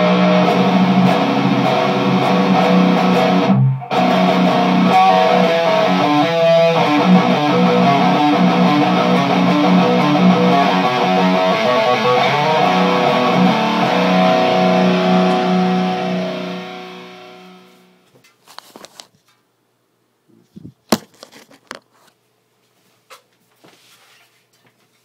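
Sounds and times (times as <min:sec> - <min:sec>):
distorted electric guitar chord: 0:00.0 - 0:18.0.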